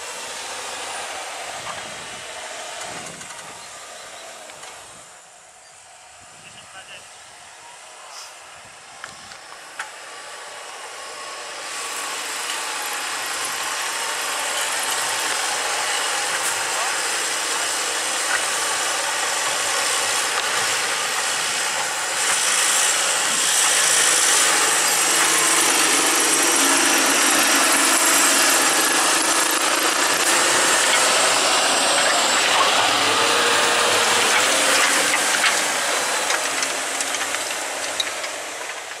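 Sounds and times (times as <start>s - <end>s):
tractor diesel engine running: 0.0s - 39.0s
disc harrow hissing and rattling: 9.0s - 39.0s.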